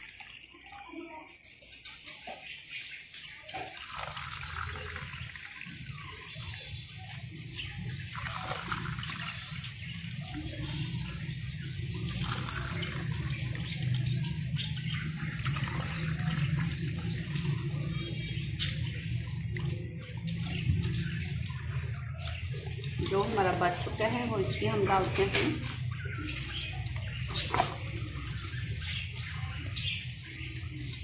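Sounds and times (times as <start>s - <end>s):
syrup pouring and splashing: 3.5s - 23.9s.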